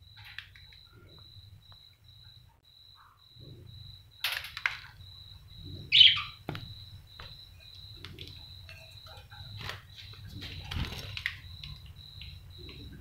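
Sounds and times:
bird squawk: 5.9s - 6.4s
budgerigars chirping: 5.9s - 6.4s.

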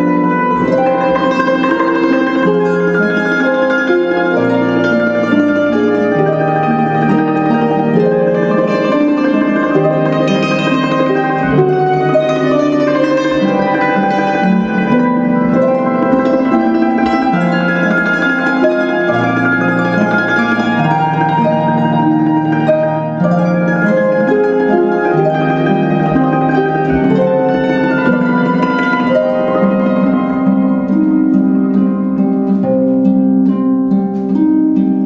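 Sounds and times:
slow harp melody: 0.0s - 35.0s.

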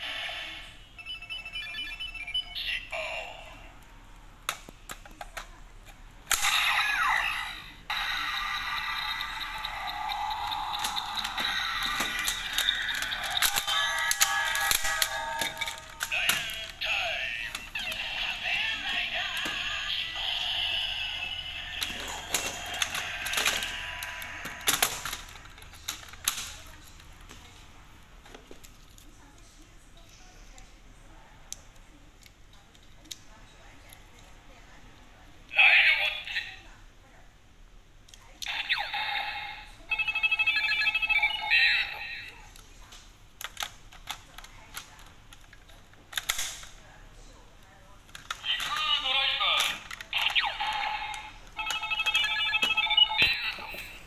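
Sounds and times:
plastic toy clicking: 8.4s - 16.8s, 21.8s - 27.1s, 43.4s - 46.8s, 48.0s - 49.0s
toy electronic jingle: 38.6s - 42.0s, 50.2s - 53.8s
sharp plastic clicks: 43.4s - 46.8s.

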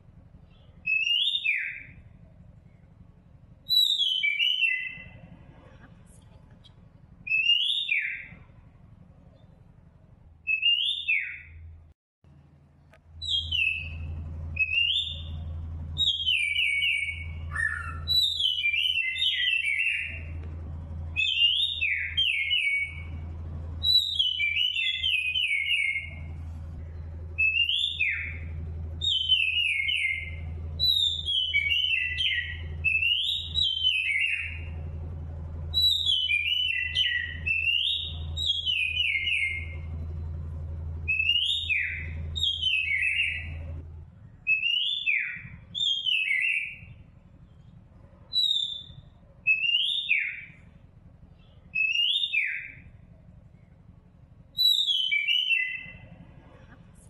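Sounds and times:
low steady hum: 0.0s - 57.0s
small bird chirping: 0.4s - 2.8s, 3.6s - 5.3s, 13.2s - 20.4s, 27.0s - 34.8s, 44.4s - 50.7s, 54.6s - 56.2s.

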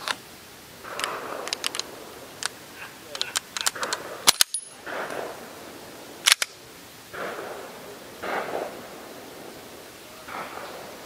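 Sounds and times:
handling rustle: 0.8s - 5.3s.

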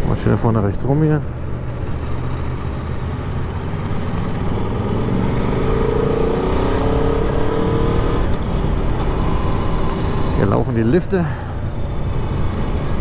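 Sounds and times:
motorcycle engine accelerating: 1.7s - 10.3s.

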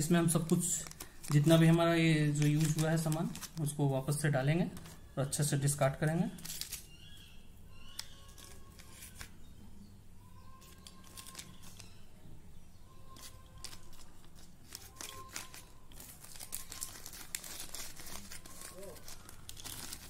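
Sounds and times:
plastic bag crinkling: 0.0s - 5.0s, 6.3s - 7.2s, 10.6s - 12.0s, 13.1s - 20.0s.

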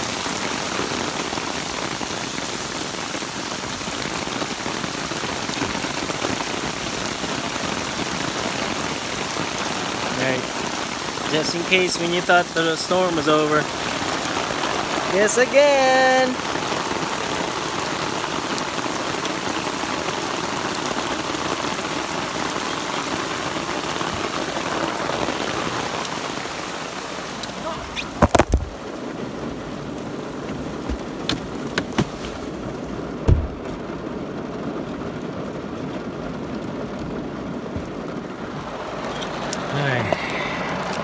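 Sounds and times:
heavy rain pouring: 0.0s - 41.0s
heavy thump: 30.8s - 32.2s, 33.2s - 33.8s.

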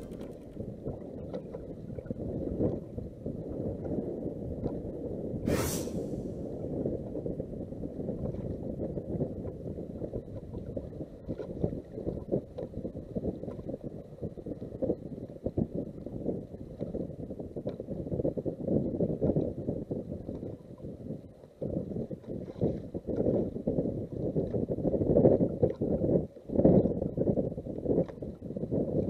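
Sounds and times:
wind buffeting microphone: 0.0s - 29.0s
brief loud hiss: 5.5s - 6.4s.

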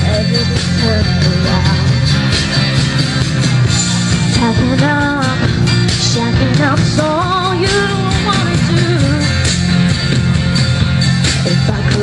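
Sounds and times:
woman singing into a microphone: 0.0s - 2.0s, 4.3s - 9.6s, 11.4s - 12.0s
pop-rock backing music: 0.0s - 12.0s.

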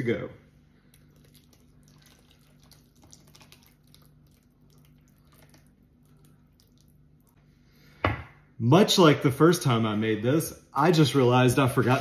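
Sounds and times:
thick liquid pouring and dripping: 0.8s - 7.4s.

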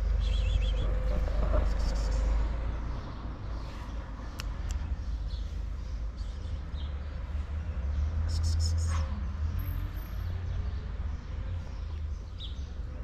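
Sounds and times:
wind rumble on microphone: 0.0s - 2.1s.

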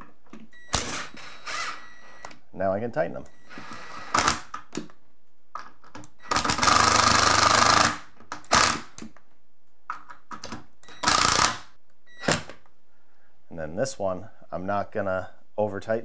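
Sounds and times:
power driver driving screws: 0.7s - 2.4s, 3.5s - 4.6s, 6.1s - 9.1s, 10.9s - 12.6s.

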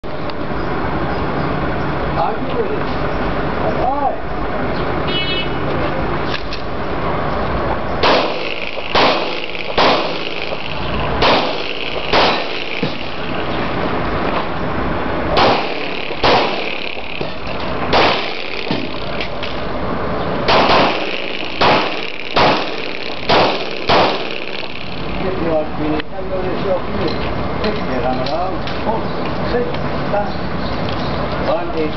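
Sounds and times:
handgun shots: 8.0s - 13.2s, 15.3s - 19.6s, 20.5s - 24.7s.

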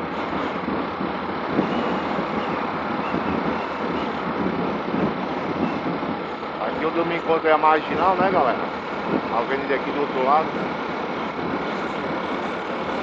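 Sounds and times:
wind and road noise: 0.0s - 13.0s.

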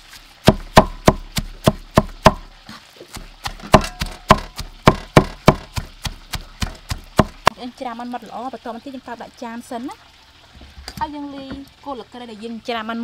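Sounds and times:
cleaver chopping on wooden block: 0.4s - 2.5s, 3.1s - 7.5s.

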